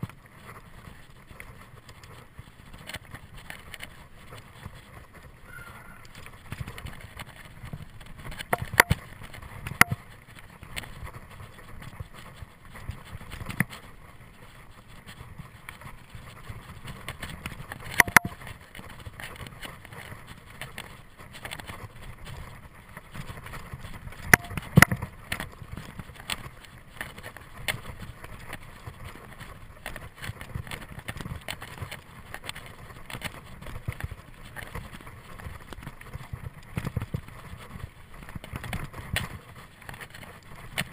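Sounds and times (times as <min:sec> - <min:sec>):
bike rattling over bumps: 0:00.0 - 0:40.9
bike tyres rumbling on dirt: 0:00.0 - 0:40.9
sharp clacks: 0:17.9 - 0:18.5, 0:24.3 - 0:25.1.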